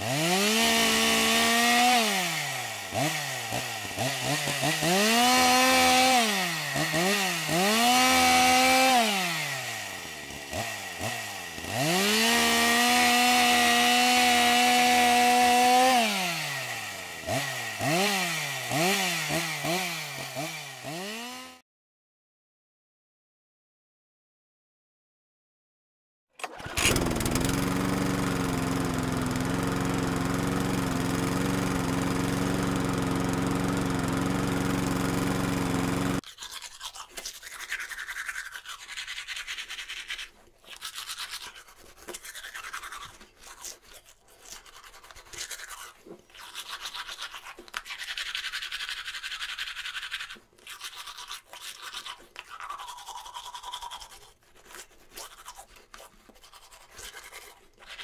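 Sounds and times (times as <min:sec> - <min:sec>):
hand sanding wood: 0:00.0 - 0:21.6, 0:31.1 - 0:58.0
power tool motor humming: 0:00.0 - 0:21.6, 0:26.4 - 0:36.2.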